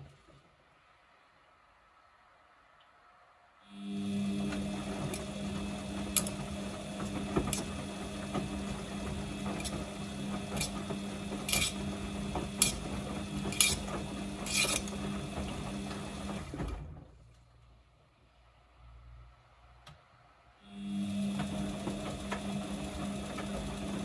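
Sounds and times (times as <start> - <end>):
washing machine motor humming: 3.7 - 17.1, 20.6 - 24.0.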